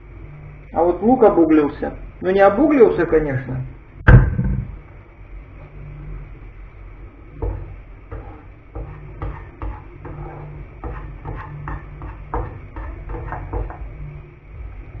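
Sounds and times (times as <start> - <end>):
low steady hum: 0.0 - 15.0
spatula scraping and tapping pan: 7.4 - 14.1.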